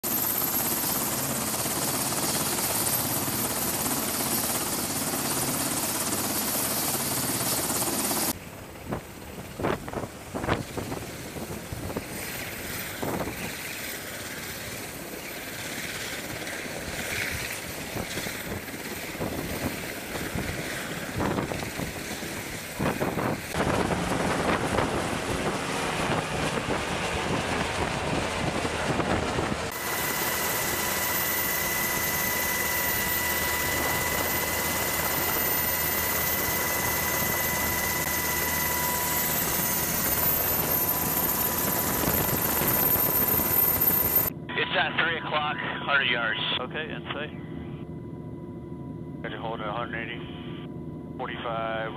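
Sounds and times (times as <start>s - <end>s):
helicopter rotor and turbine noise: 0.0s - 51.9s
high steady whine: 22.8s - 51.9s.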